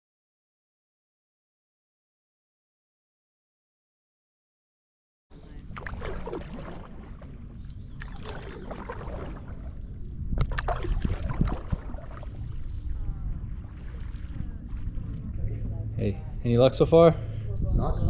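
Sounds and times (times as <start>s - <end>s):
paddle splashing in lake water: 5.3s - 16.4s
steady low rumble: 5.3s - 18.0s.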